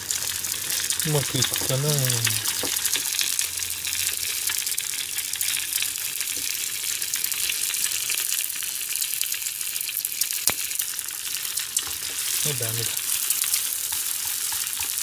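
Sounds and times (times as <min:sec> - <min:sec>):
eggs sizzling in oil: 0:00.0 - 0:15.0
turner clicking on pan: 0:11.7 - 0:15.0.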